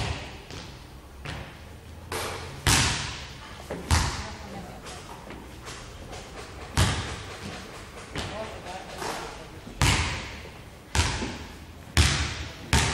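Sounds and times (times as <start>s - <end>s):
basketball bouncing on wooden floor: 2.2s - 4.4s, 5.7s - 8.4s, 9.8s - 12.9s.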